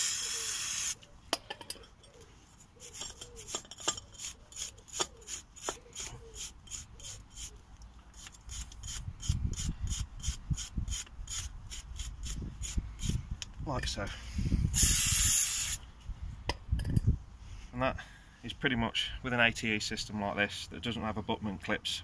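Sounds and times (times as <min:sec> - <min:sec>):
aerosol spray hiss: 0:00.0 - 0:01.0, 0:14.8 - 0:15.8
wire brush scrubbing metal: 0:02.6 - 0:13.2.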